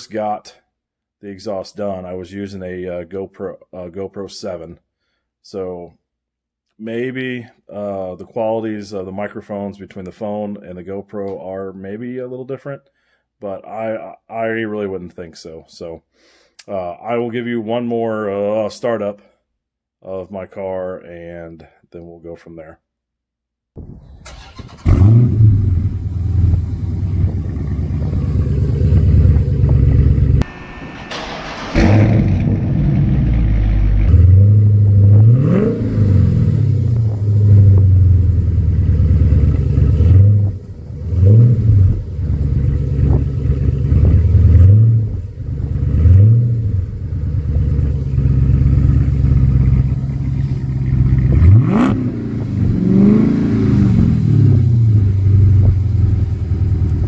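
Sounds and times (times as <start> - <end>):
car engine starting: 23.8 - 57.0
car engine idling: 24.3 - 35.2, 36.6 - 52.9, 54.7 - 57.0
car engine revving: 24.3 - 57.0.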